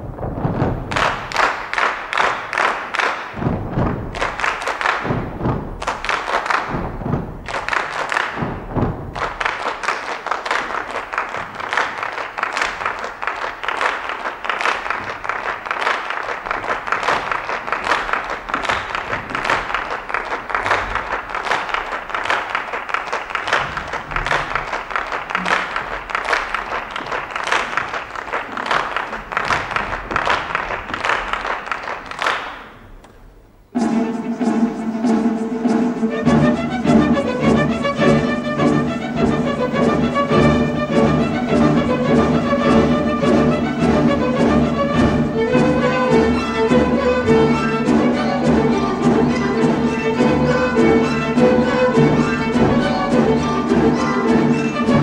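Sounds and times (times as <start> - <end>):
crowd clapping in unison: 0.0 - 33.5, 36.3 - 55.0
orchestral music: 33.7 - 55.0.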